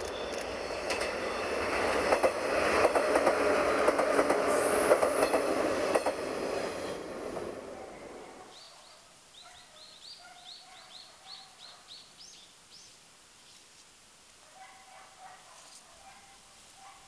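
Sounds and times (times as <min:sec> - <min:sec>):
train wheels clattering: 0:00.8 - 0:07.5.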